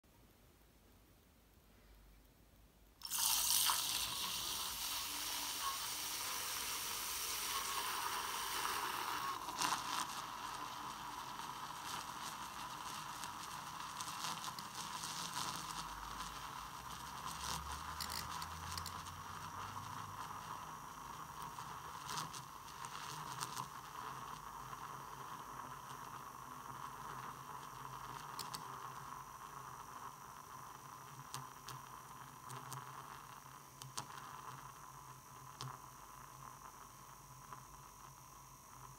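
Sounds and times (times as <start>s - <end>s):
milk crackling: 3.0s - 19.2s
milk frother motor whine: 3.0s - 38.9s.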